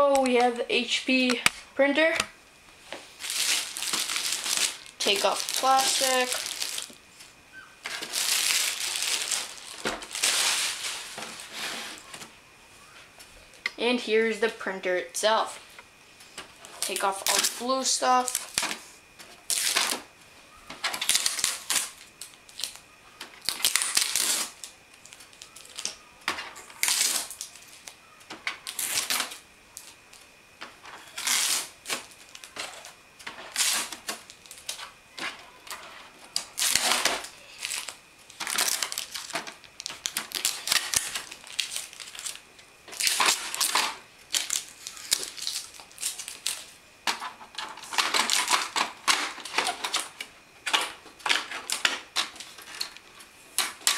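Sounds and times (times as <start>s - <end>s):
packing tape ripping off: 3.2s - 7.0s, 7.8s - 12.0s, 16.6s - 18.8s, 19.4s - 20.0s, 20.9s - 22.8s, 23.4s - 26.0s, 26.6s - 28.0s, 28.6s - 30.0s, 31.0s - 34.8s, 35.7s - 46.7s, 47.8s - 53.0s.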